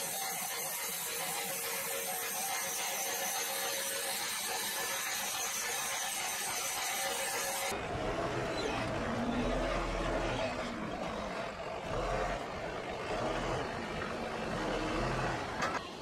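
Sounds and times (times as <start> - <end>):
forklift engine running: 7.7 - 15.8.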